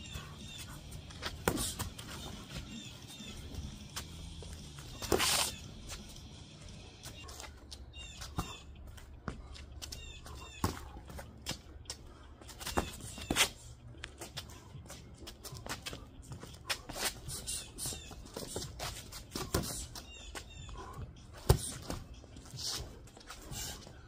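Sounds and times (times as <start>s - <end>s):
feet shuffling on paving stones: 0.1s - 24.0s
boxing gloves slapping and thudding: 1.1s - 2.3s, 17.9s - 19.9s, 21.4s - 22.2s.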